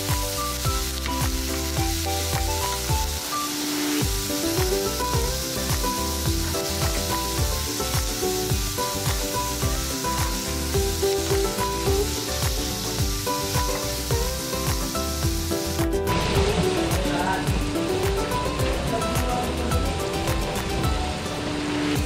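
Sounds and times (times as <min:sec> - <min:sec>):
meat sizzling in frying pan: 0:00.0 - 0:18.3
background music with beat: 0:00.0 - 0:22.0.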